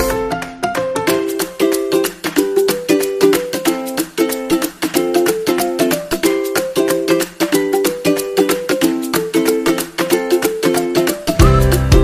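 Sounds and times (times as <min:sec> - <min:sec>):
upbeat plucked string music: 0:00.0 - 0:12.0.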